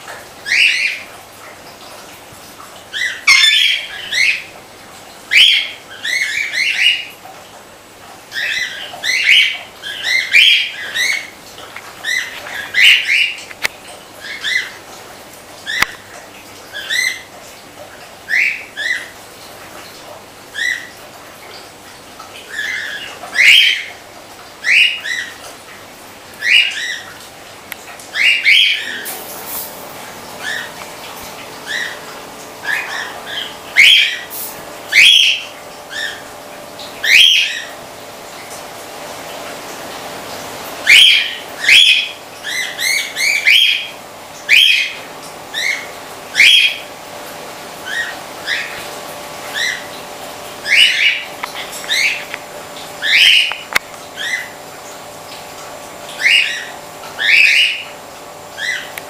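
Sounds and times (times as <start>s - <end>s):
water pumps humming: 0.0s - 59.0s
birds chirping: 0.4s - 1.1s, 2.9s - 4.5s, 5.3s - 7.2s, 8.3s - 13.5s, 28.1s - 29.2s, 29.8s - 37.8s, 40.8s - 46.9s, 49.5s - 50.0s, 50.6s - 54.6s, 56.1s - 58.0s, 58.6s - 59.0s.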